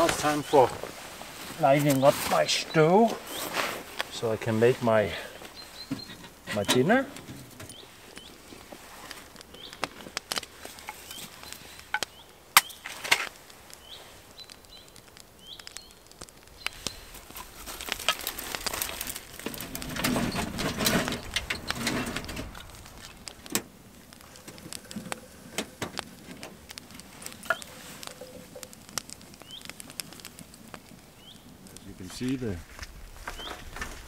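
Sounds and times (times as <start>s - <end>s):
fire crackling: 0.0s - 34.0s
flames rushing: 0.0s - 34.0s
sticks snapping and clicking: 9.2s - 20.0s, 21.2s - 31.8s.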